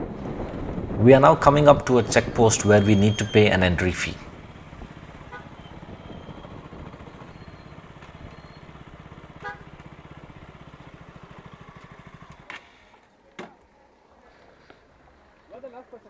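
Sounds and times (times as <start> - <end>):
motorcycle engine idling: 4.2 - 13.2.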